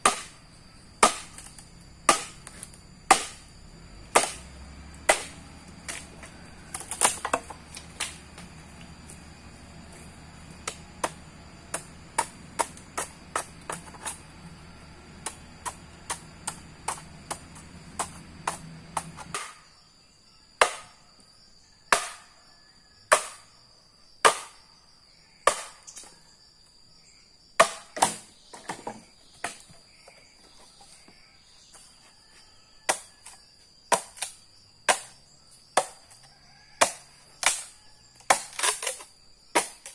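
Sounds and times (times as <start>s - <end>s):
blade chopping wood: 0.0s - 0.4s, 1.0s - 8.5s, 9.9s - 14.2s, 15.1s - 19.7s, 20.6s - 21.0s, 21.9s - 22.3s, 23.1s - 23.5s, 24.2s - 24.6s, 25.5s - 26.1s, 27.6s - 29.7s, 32.9s - 36.2s, 36.8s - 39.9s.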